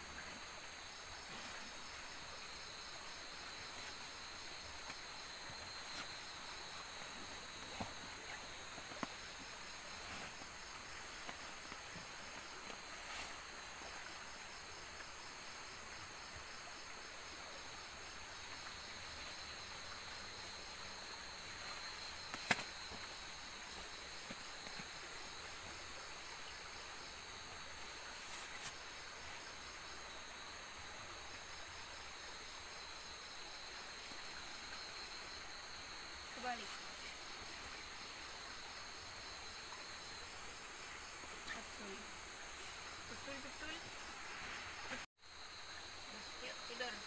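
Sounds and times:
crickets and insects trilling: 0:00.0 - 0:47.0
sleeping bag rustling: 0:03.5 - 0:14.0.

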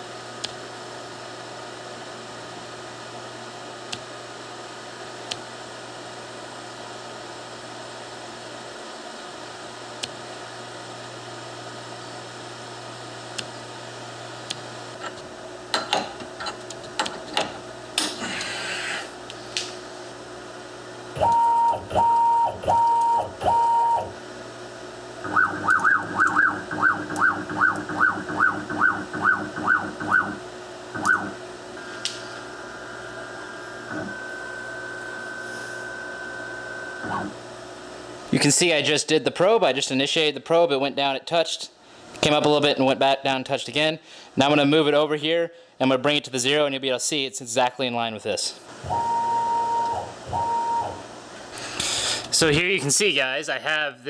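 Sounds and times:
cnc router humming: 0:21.1 - 0:38.2
short electronic beeps: 0:48.9 - 0:51.0.

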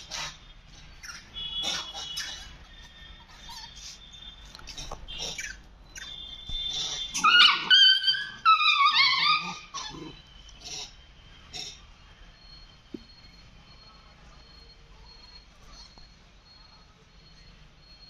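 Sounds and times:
monkeys screaming: 0:01.0 - 0:02.7, 0:03.3 - 0:04.0, 0:04.7 - 0:06.2, 0:06.8 - 0:11.0.

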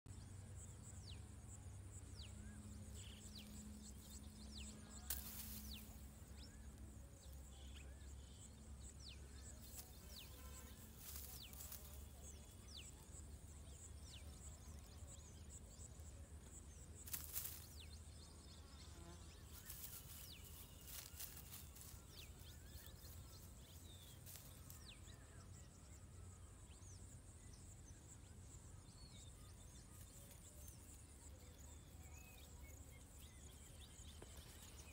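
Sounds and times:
high insect drone: 0:00.3 - 0:34.9.

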